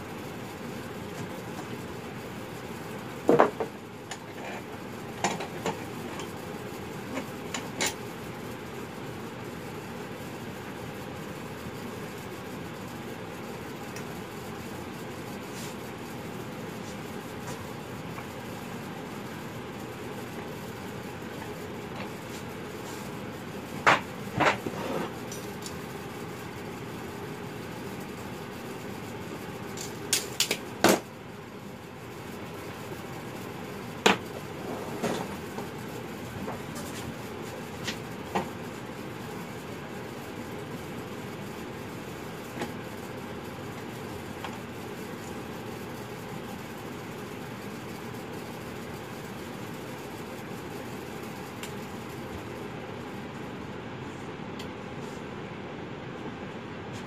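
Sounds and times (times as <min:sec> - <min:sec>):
low background hum: 0:00.0 - 0:57.0
tools knocking on workbench: 0:03.3 - 0:03.8.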